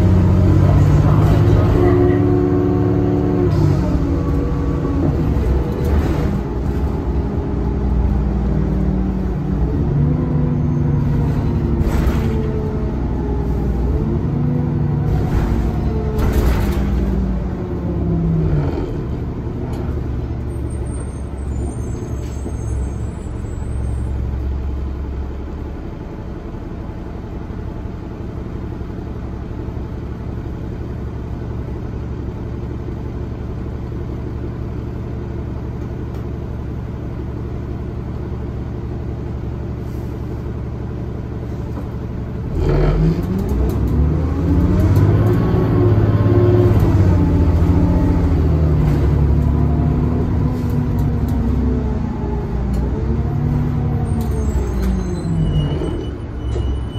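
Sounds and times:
bus diesel engine: 0:00.0 - 0:56.9.

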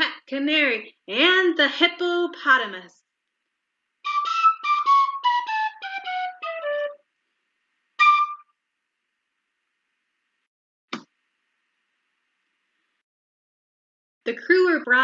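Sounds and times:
flute-like whistle notes: 0:04.1 - 0:07.0, 0:08.0 - 0:08.5.

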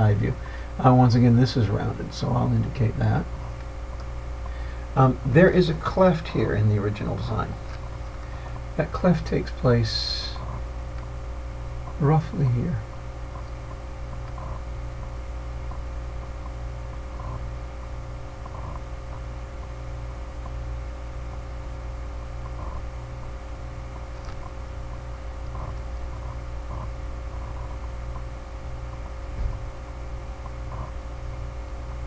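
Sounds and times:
low electrical hum: 0:00.0 - 0:32.0
short low thump: 0:29.3 - 0:29.7.

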